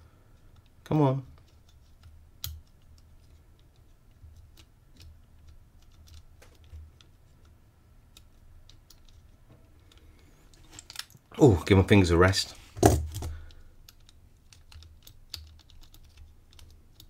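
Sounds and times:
padlock dial wheels clicking: 13.5 - 17.0.

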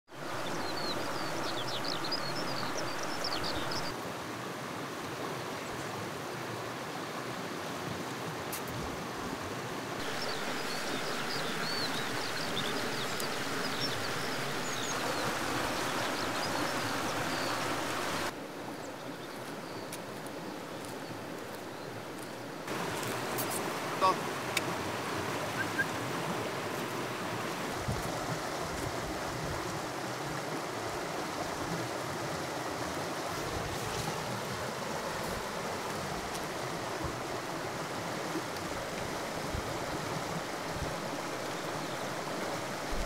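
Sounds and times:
river rushing over rocks: 0.1 - 18.8, 20.0 - 43.0
small birds chirping: 0.2 - 4.0, 10.0 - 24.2, 25.5 - 26.0.

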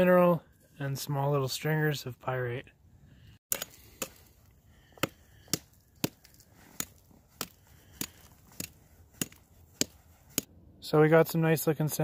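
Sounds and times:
rock pick striking rock: 4.9 - 10.5.

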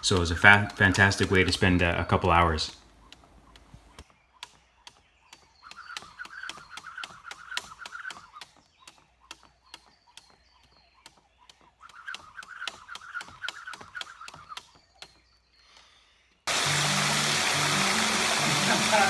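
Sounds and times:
jump rope tapping wooden platform: 0.0 - 15.4
rope whirring fast: 3.4 - 15.2, 16.5 - 19.0.

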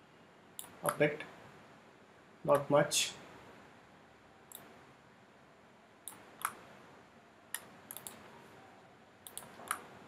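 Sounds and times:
mouse and keyboard clicks: 6.1 - 6.6, 7.5 - 8.2, 9.2 - 9.9.

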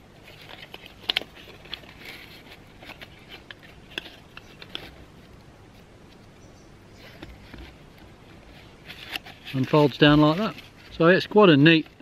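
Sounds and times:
fabric sack rustling: 7.1 - 12.0.

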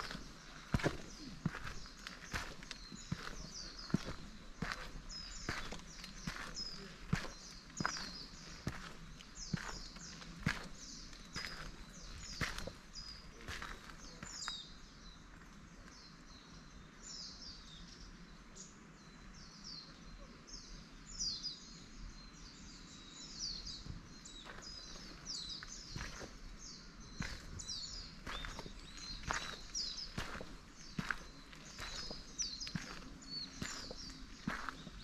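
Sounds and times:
footsteps: 0.0 - 12.9, 13.5 - 14.0, 24.4 - 26.5, 27.2 - 35.0
small birds chirping: 0.0 - 35.0.

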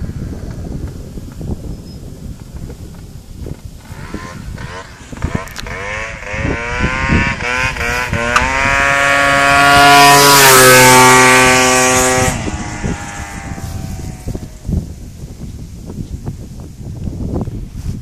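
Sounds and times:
scooter accelerating past: 3.8 - 14.7.

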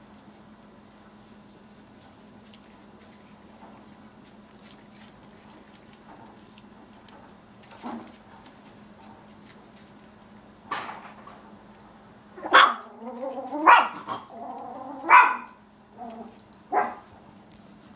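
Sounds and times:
small dog barking: 12.4 - 15.6, 16.2 - 17.1.

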